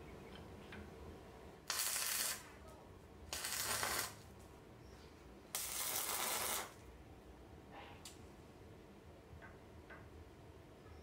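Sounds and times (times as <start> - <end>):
crackling hissing welding arc: 1.6 - 2.6, 3.3 - 4.3, 5.5 - 6.8.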